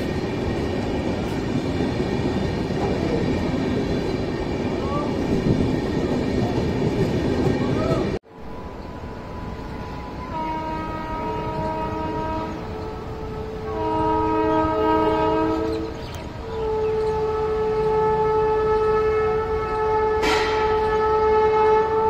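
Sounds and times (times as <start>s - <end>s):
train rumble: 0.0s - 22.0s
train air horn blasts: 8.4s - 22.0s.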